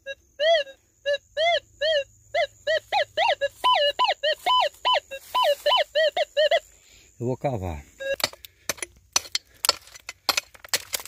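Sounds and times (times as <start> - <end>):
metal detector beeps: 3.2 - 6.6, 8.0 - 8.3.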